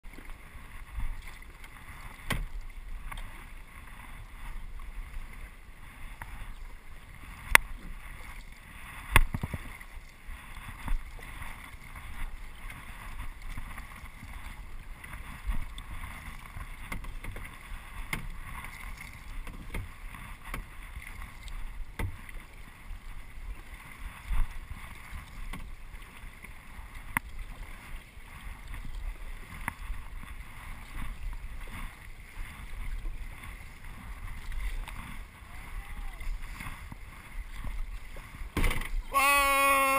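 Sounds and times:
paddle pulling through water: 0.0s - 39.9s
water washing along hull: 0.0s - 39.9s.

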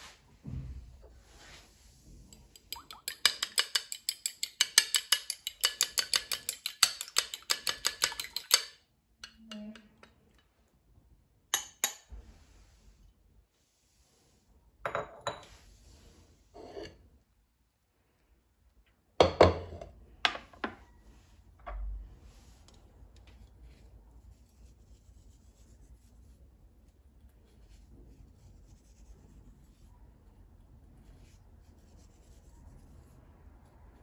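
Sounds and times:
utensil clinking against bowl: 2.4s - 10.4s.

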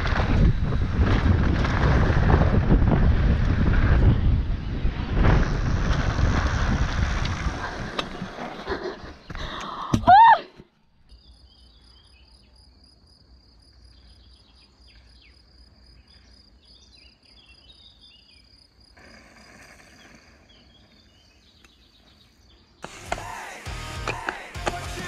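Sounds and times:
low wind rumble: 0.0s - 9.6s
bird chirps: 11.0s - 12.8s, 13.8s - 18.6s, 19.7s - 22.9s
insects trilling: 11.1s - 23.7s.

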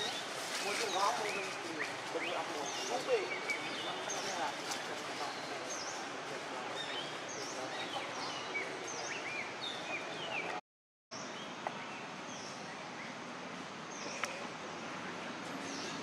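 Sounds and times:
steady background hiss: 0.0s - 10.6s.

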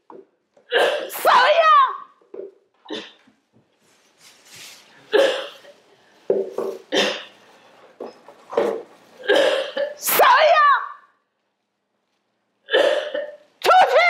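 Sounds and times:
woman coughing and retching: 0.7s - 1.5s, 2.8s - 3.3s, 5.1s - 5.7s, 6.9s - 7.4s, 9.2s - 10.1s, 12.7s - 13.8s.

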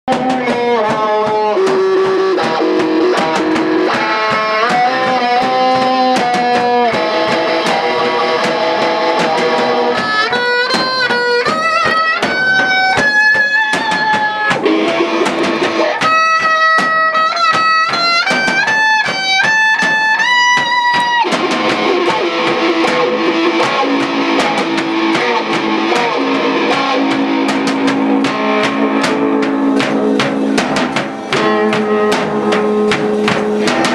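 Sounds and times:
drum kit: 0.1s - 33.9s
electric guitar: 0.1s - 33.9s
lap steel guitar sliding notes: 0.3s - 33.9s.

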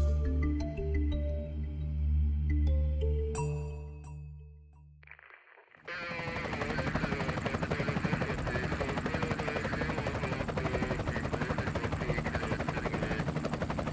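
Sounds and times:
helicopter engine whine: 5.9s - 13.9s
helicopter rotor chop: 5.9s - 13.9s.

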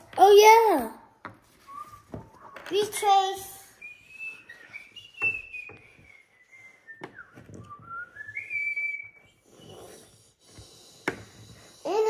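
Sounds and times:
child whistling: 1.6s - 10.5s.

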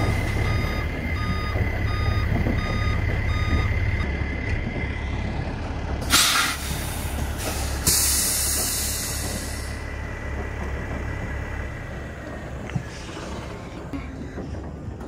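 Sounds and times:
backup alarm beeping: 0.0s - 4.1s
diesel engine idling: 0.0s - 15.0s
air brakes hissing: 6.0s - 9.9s.

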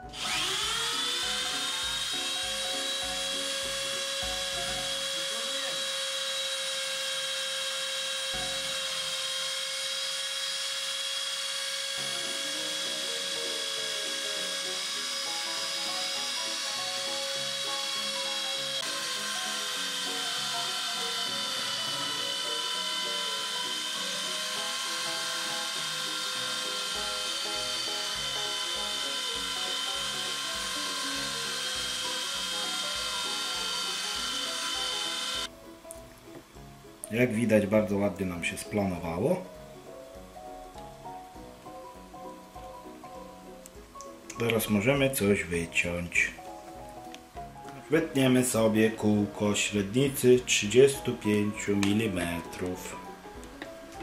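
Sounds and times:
rotary tool high whine: 0.0s - 35.5s
stepper motor tones: 0.0s - 35.5s.

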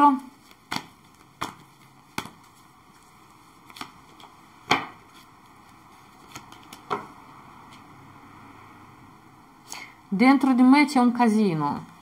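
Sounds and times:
cards tapping on tabletop: 0.7s - 2.5s, 3.7s - 5.0s, 6.3s - 7.1s.

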